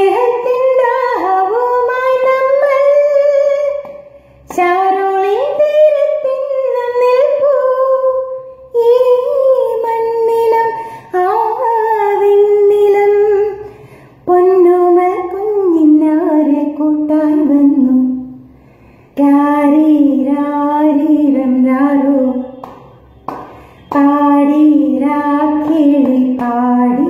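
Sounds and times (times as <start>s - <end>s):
woman singing with vibrato: 0.0s - 18.4s, 19.1s - 27.0s
singer breathing: 4.0s - 4.5s, 10.7s - 11.2s, 13.6s - 14.2s, 18.4s - 19.2s, 23.5s - 23.9s.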